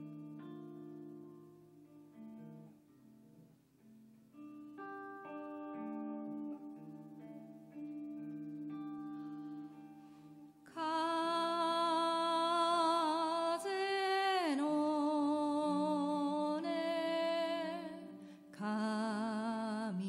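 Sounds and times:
soft sustained backing music: 0:00.0 - 0:20.0
woman singing with vibrato: 0:10.7 - 0:20.0.

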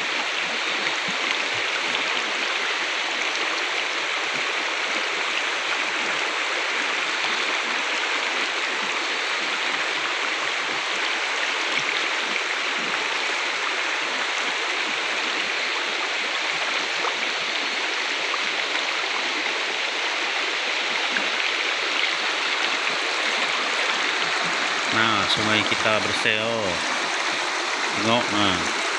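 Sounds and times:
river rushing over boulders: 0:00.0 - 0:28.9.

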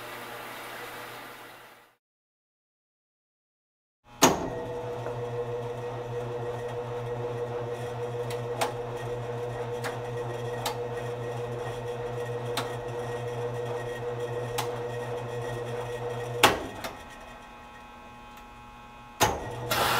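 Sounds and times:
laundromat machines humming: 0:04.1 - 0:19.9.

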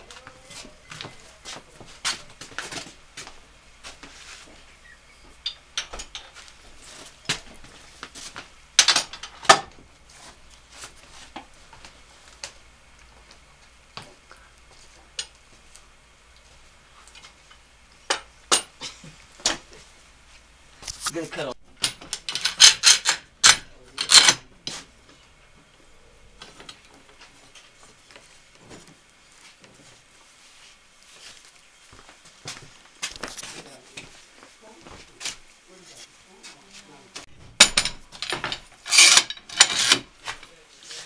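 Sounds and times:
metal clamps clinking and clanking: 0:05.4 - 0:06.4, 0:21.8 - 0:24.4, 0:37.6 - 0:40.5.

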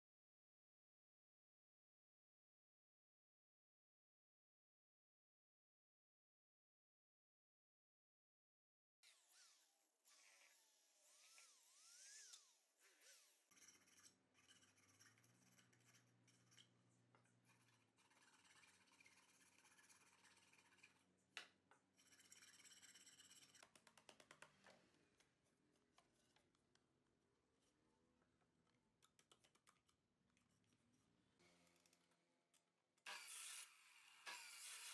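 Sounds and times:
hand file rasping on plywood: 0:11.2 - 0:16.6, 0:17.6 - 0:20.9.

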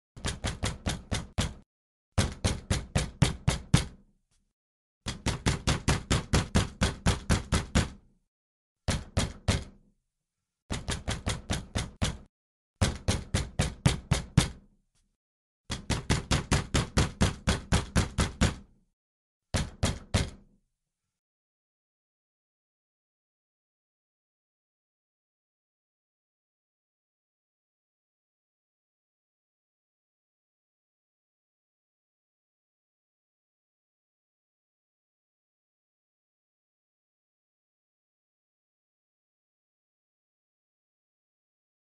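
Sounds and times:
pounding on wooden door: 0:00.2 - 0:01.6, 0:02.2 - 0:04.0, 0:05.1 - 0:08.0, 0:08.9 - 0:09.8, 0:10.7 - 0:14.7, 0:15.7 - 0:18.8, 0:19.5 - 0:20.6.

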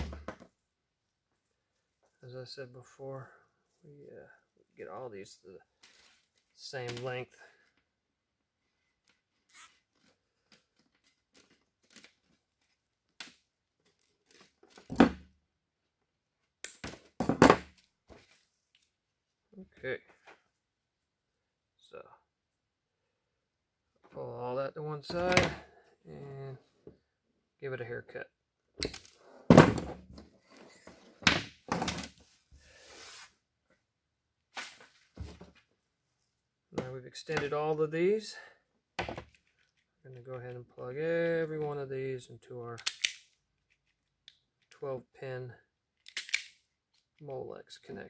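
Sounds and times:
wires rustling and clicking: 0:09.0 - 0:14.9.

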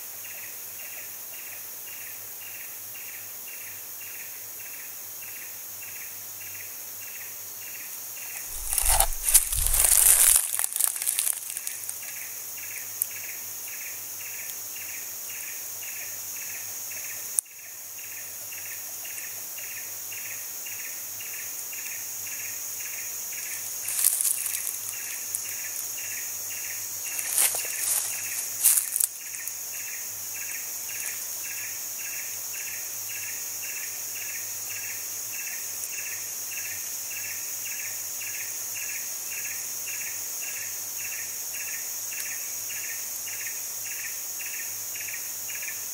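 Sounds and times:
pulsing insect call: 0:01.9 - 0:45.9
rustling: 0:08.5 - 0:12.0, 0:23.8 - 0:25.2, 0:27.1 - 0:29.1
high-pitched insect drone: 0:08.5 - 0:45.9.

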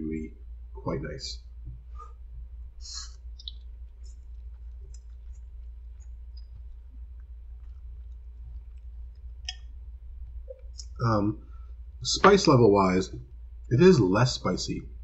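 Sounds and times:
low hum: 0:00.0 - 0:15.0
chewing clicks: 0:03.4 - 0:09.7.

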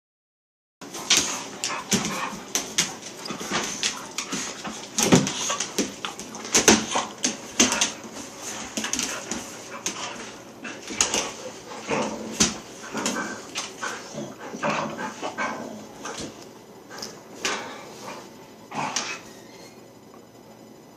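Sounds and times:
dogs snarling and yelping: 0:09.0 - 0:16.4, 0:17.6 - 0:19.9.

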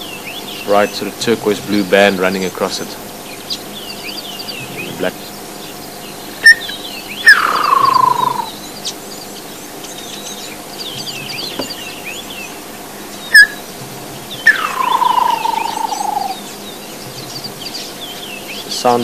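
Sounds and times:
small birds chirping faintly: 0:00.0 - 0:19.0.

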